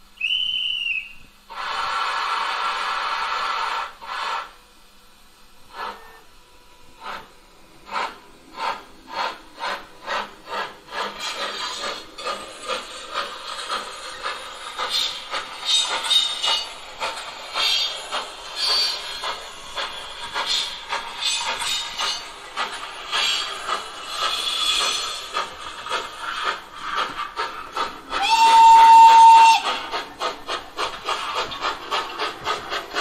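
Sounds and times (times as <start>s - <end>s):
loud steam hiss: 0.0s - 33.0s
steam locomotive exhaust chuffs: 0.0s - 33.0s.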